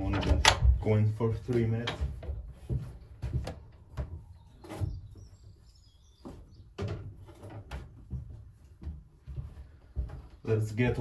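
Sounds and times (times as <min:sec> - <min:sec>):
faint high bird chirping: 0:03.6 - 0:07.4
knocks and thumps of handling: 0:06.2 - 0:09.1.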